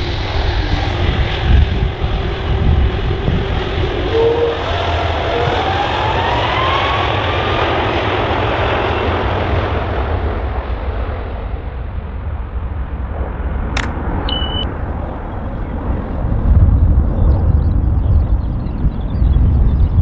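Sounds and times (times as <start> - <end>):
jet engines roaring at takeoff: 0.0 - 20.0
sharp click: 13.8 - 14.7
short high beep: 13.8 - 14.7.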